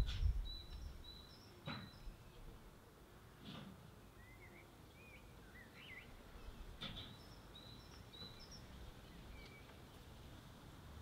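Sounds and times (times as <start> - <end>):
songbirds chirping: 0.0 - 11.0.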